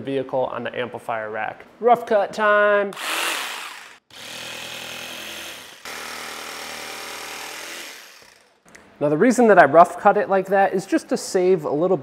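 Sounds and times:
jigsaw sawing through plastic: 3.0 - 8.4.

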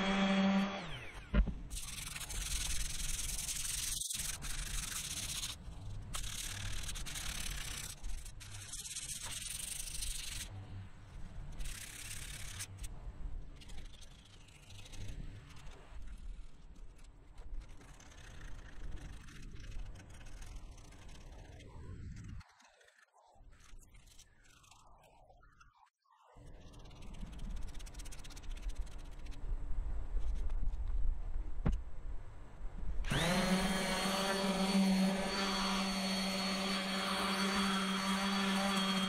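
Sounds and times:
sandpaper rubbing on filler: 1.7 - 10.5, 33.2 - 39.0.

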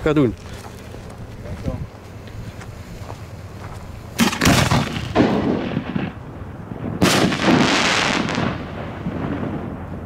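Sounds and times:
firework launch bang: 4.2 - 6.2, 6.8 - 9.8
firework shell bursting: 4.2 - 6.2.

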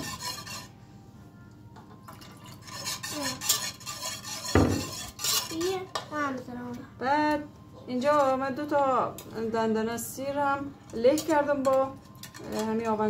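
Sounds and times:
whisk scraping steel pot: 0.0 - 0.8, 2.2 - 5.9, 11.1 - 13.0
knock on pot: 4.5 - 4.9.

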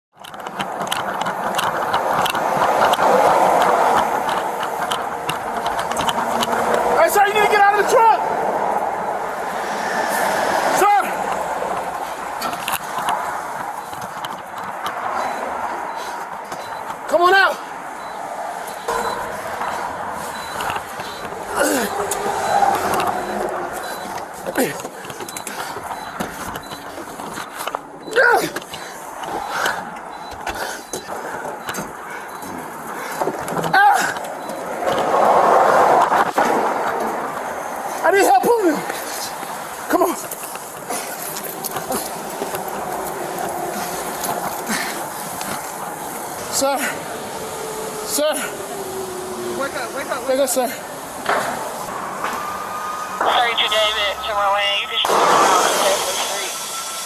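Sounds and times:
steady background noise: 0.1 - 57.0
knocks and clicks: 0.2 - 6.9
equipment clicking and rattling: 0.2 - 7.0, 11.2 - 17.1, 18.7 - 35.1
footsteps: 38.8 - 46.5, 50.9 - 56.7.

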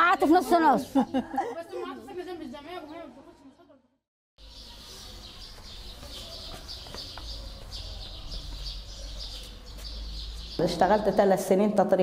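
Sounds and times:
small birds chirping: 4.4 - 11.7.

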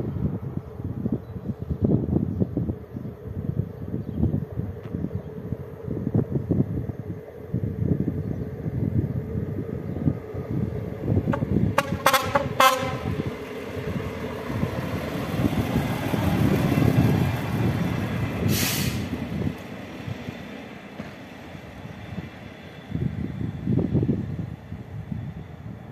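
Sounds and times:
railcar rumbling past: 0.0 - 25.9
railcar horn toots: 11.3 - 13.4
brief hiss: 18.5 - 19.1.

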